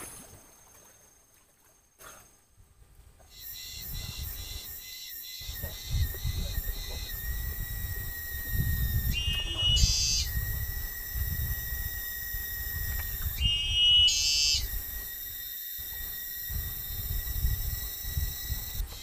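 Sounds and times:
high-pitched drone: 3.4 - 19.0
animal shrill calls: 9.1 - 10.4, 13.4 - 14.8.

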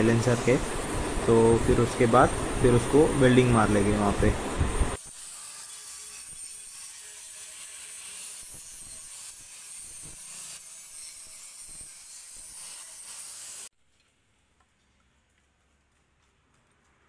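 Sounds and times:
angle grinder grinding metal: 0.0 - 4.4, 5.0 - 13.7.

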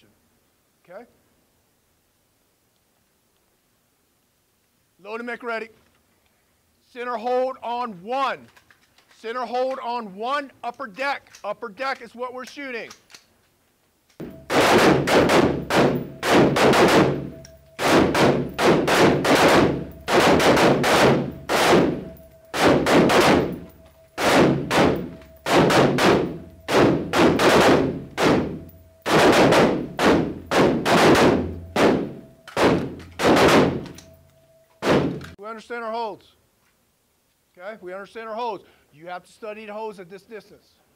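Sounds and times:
rifle shots echoing indoors: 14.2 - 34.2, 34.8 - 35.4.

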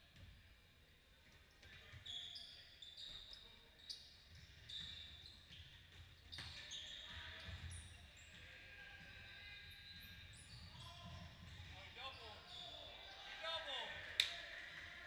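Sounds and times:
sneakers squeaking on court: 1.5 - 13.0.

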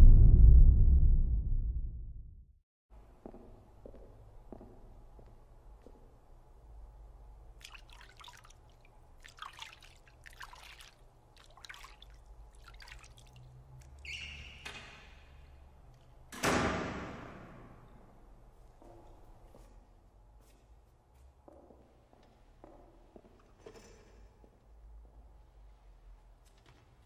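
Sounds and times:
low hum: 0.0 - 2.6
hands splashing water in basin: 7.6 - 14.0.

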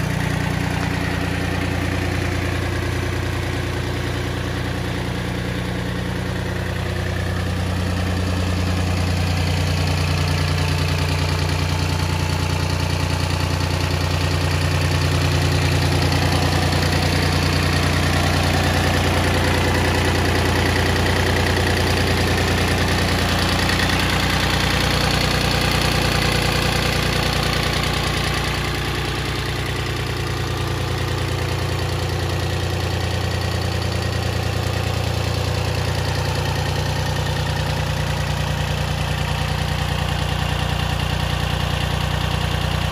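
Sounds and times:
tractor diesel engine idling: 0.0 - 42.9.

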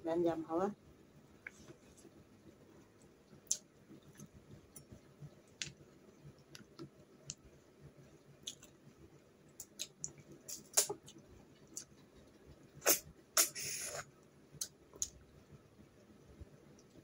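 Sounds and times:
clicks and smacks of eating snails: 3.0 - 7.5, 8.4 - 8.8, 9.6 - 12.4.

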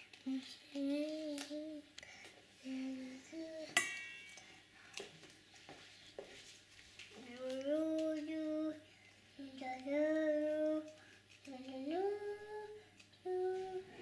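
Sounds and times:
toy saucepan clinking: 3.8 - 4.5
child humming: 9.4 - 14.0.

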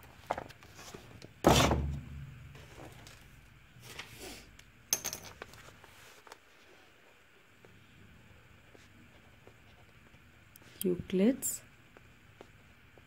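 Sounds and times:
paper rustling: 0.1 - 1.2.

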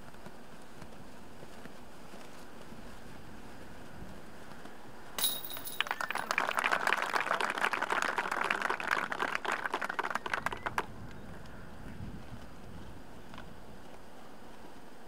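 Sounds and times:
disc striking basket chains: 5.2 - 6.3
people clapping: 5.6 - 11.2.

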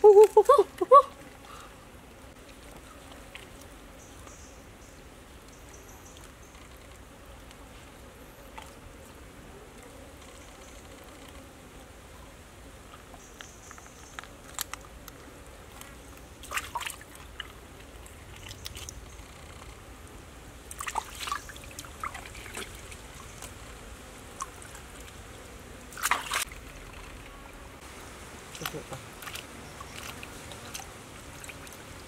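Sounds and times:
water trickling and sloshing: 0.7 - 4.4, 15.7 - 19.2, 20.6 - 27.6, 28.5 - 32.0
short wet sounds: 16.4 - 19.0, 25.9 - 27.4.

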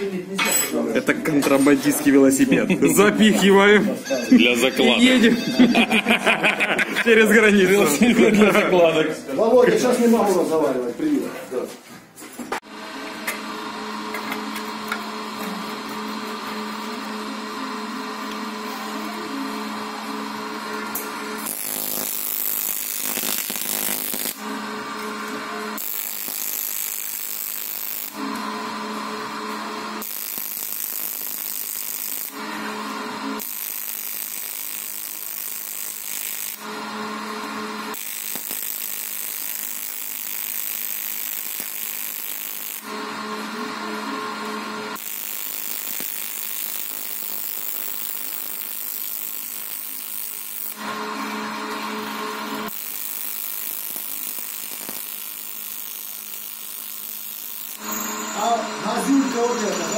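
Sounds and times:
welding arc hiss and buzz: 12.6 - 59.9.

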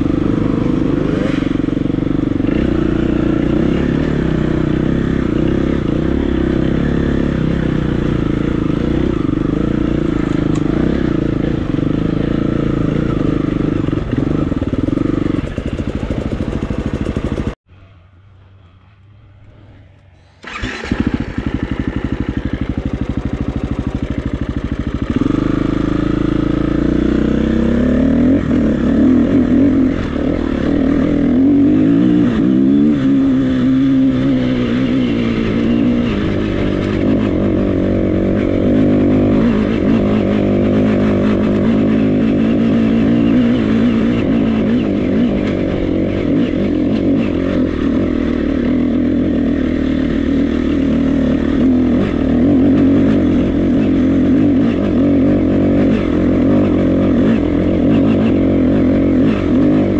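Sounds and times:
motorcycle engine revving: 0.0 - 17.6, 18.5 - 59.9.

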